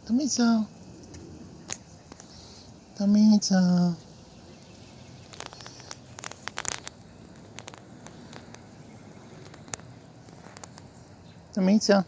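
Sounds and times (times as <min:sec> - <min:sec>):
kitten crunching dry food: 0:04.8 - 0:11.1.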